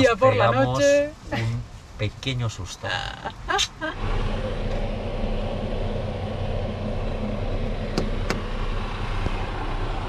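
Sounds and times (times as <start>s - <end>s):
truck diesel engine rumbling: 3.0s - 10.0s.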